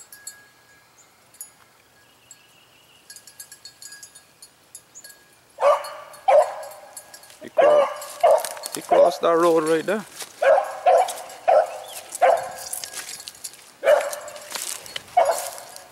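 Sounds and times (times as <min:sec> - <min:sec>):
dog baying: 0:05.6 - 0:07.0, 0:07.6 - 0:09.3, 0:10.4 - 0:12.8, 0:13.8 - 0:14.5, 0:15.1 - 0:15.9.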